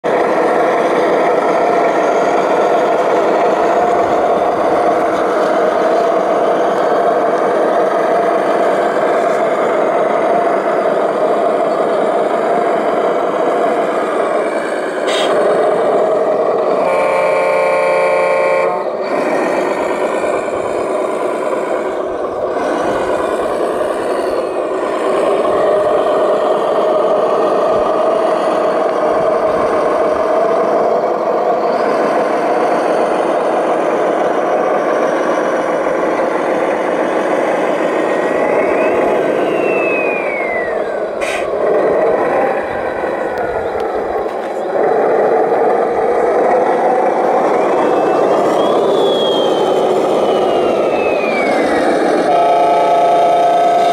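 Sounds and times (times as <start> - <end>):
rising and falling whine: 0.0 - 17.2, 18.6 - 53.9
model truck engine drone: 0.0 - 53.9
truck horn: 15.1 - 15.4, 16.7 - 19.2, 52.2 - 53.9.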